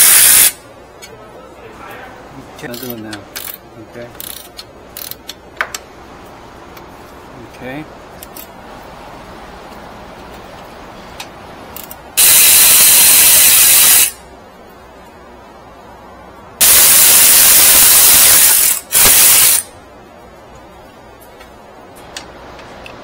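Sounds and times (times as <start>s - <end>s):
compressed air hissing: 0.0s - 0.6s, 12.2s - 14.2s, 16.6s - 19.7s.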